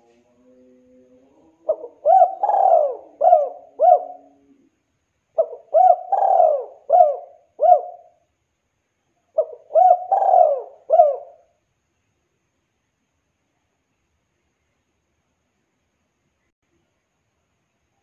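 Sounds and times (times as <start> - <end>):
dove cooing: 1.0 - 4.7, 5.4 - 8.2, 9.4 - 11.5.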